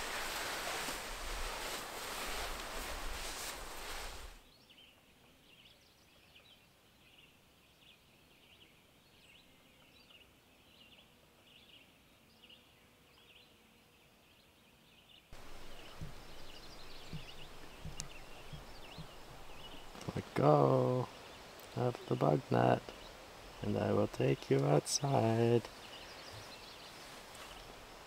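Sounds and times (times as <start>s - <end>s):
rustling with soft knocks: 0.0s - 4.4s, 15.4s - 20.4s, 24.6s - 28.0s
songbirds chirping: 0.0s - 28.0s.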